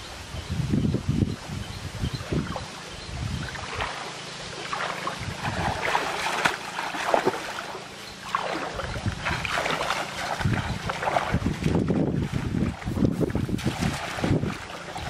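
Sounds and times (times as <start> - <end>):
wind on microphone: 0.0 - 4.1, 5.0 - 6.5, 8.4 - 15.0
wading through shallow water: 0.3 - 15.0.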